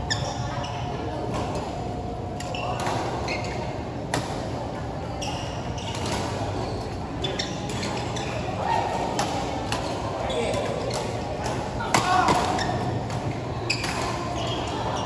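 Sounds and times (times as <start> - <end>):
shoes squeaking on court: 2.4 - 4.1, 4.7 - 8.6, 12.5 - 15.0.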